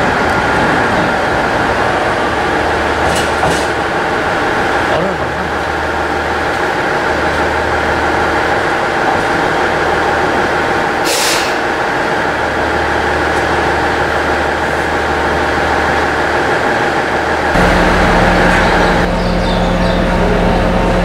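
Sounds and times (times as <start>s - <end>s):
train running noise with tones: 0.0s - 21.0s
air hiss: 11.0s - 11.6s.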